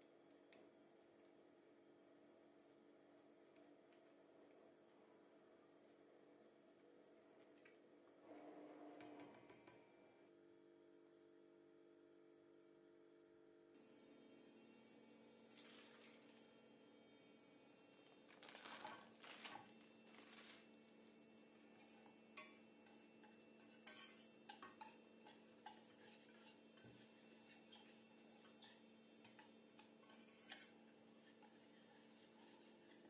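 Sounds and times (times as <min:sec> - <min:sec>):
low steady hum: 0:13.7 - 0:33.0
whisk clinking against a saucepan: 0:21.6 - 0:33.0.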